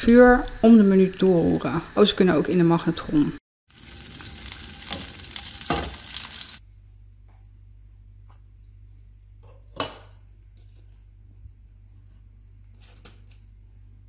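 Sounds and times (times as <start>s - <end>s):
food sizzling in frying pan: 3.7s - 6.6s.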